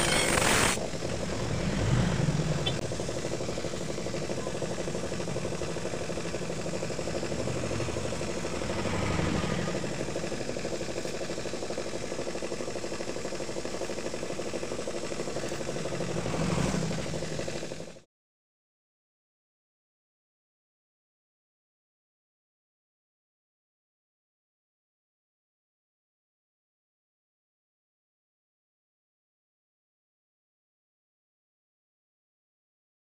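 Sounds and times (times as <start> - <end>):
electric motor spinning brush wheel: 0.0 - 18.0.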